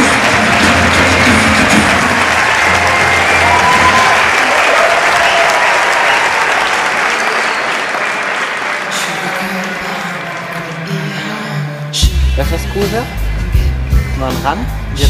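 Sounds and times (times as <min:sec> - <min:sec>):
live band playing: 0:00.0 - 0:04.2, 0:11.9 - 0:15.0
audience applauding: 0:00.0 - 0:11.4.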